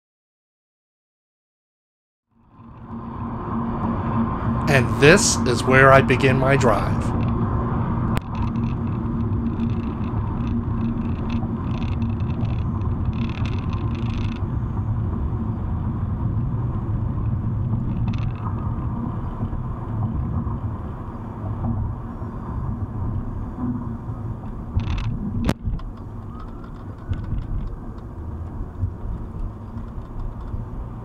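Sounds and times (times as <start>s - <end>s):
car road rumble: 2.4s - 31.0s
short crackly ticks: 8.1s - 14.8s, 17.2s - 19.6s, 24.4s - 31.0s.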